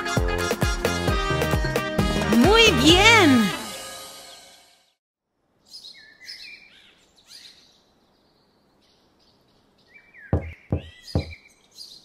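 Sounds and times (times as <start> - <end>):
cartoon birds chirping: 10.2 - 11.6
knocks on a garage door: 10.3 - 11.4.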